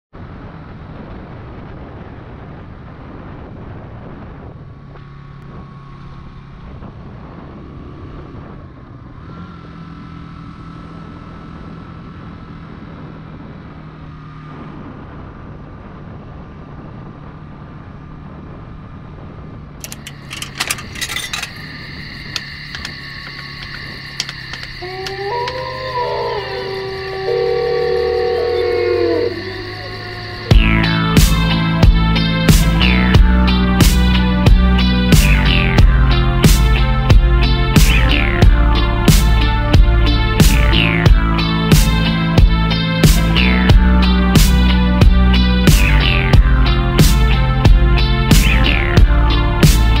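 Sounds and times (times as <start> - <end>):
motorcycle engine running: 3.8 - 50.0
clicks and rattles: 19.8 - 25.2
steady high-pitched tones: 19.8 - 32.5.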